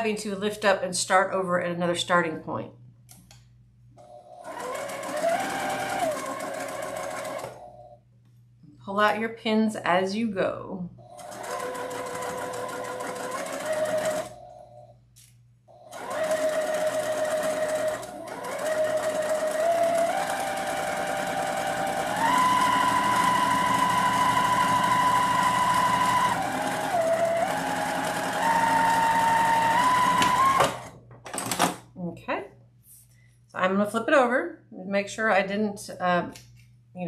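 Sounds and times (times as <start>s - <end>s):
sewing machine motor whine: 4.2s - 7.8s, 11.0s - 14.8s, 15.7s - 30.9s.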